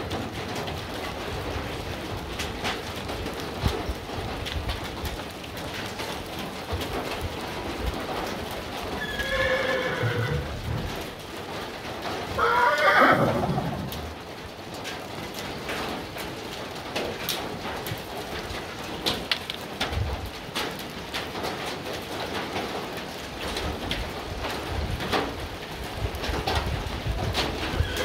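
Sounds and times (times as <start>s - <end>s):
light rain pattering: 0.0s - 28.0s
horse whinnying: 9.0s - 11.0s, 12.4s - 14.2s, 27.7s - 28.0s.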